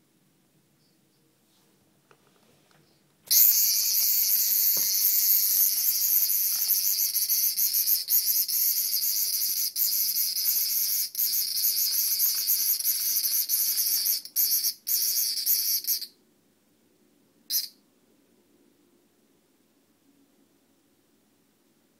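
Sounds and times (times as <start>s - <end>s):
cicada buzzing: 3.3s - 16.1s, 17.5s - 17.7s.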